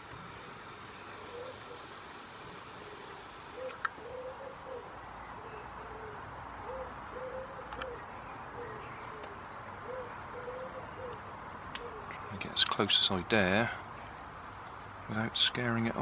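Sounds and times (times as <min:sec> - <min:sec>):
bird cooing: 0:01.0 - 0:12.3.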